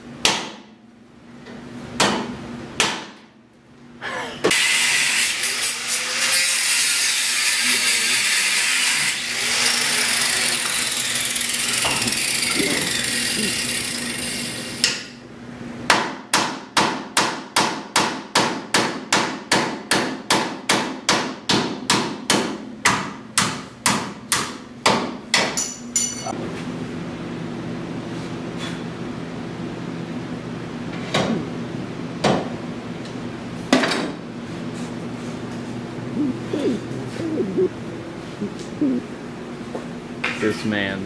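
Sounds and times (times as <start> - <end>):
grinder cutting metal: 4.5 - 14.9.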